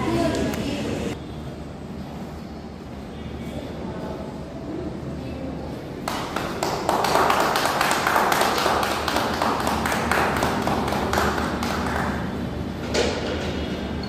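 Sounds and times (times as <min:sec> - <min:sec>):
group clapping: 0:06.0 - 0:12.4.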